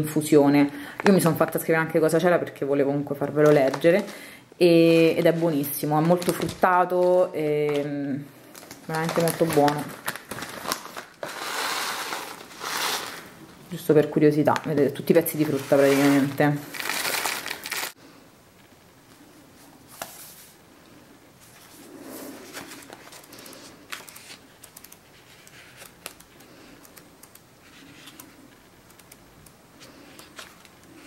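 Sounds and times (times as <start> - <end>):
foil bag rustling: 8.4 - 13.4, 15.3 - 18.0
booklet pages flipping: 8.5 - 13.3, 21.4 - 26.4, 29.8 - 31.0.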